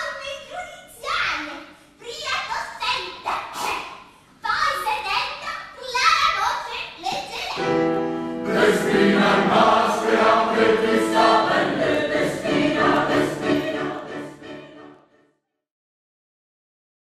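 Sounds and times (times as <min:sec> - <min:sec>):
chorus singing in sustained chords: 0:07.6 - 0:15.2.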